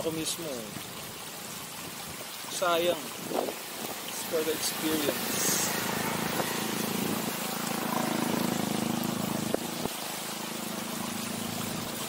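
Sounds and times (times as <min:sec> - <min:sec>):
small engine puttering: 0:05.3 - 0:09.9.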